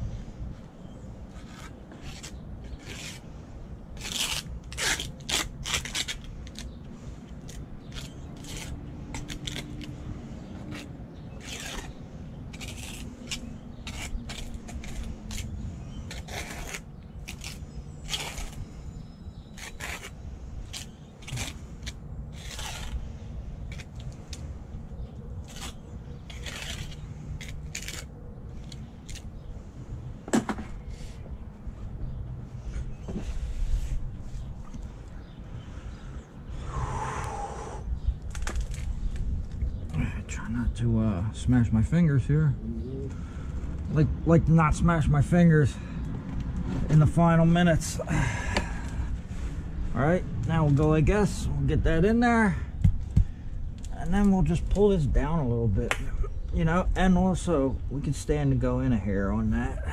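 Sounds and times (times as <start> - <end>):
trowel scraping wet mortar on stone: 12.6 - 15.5.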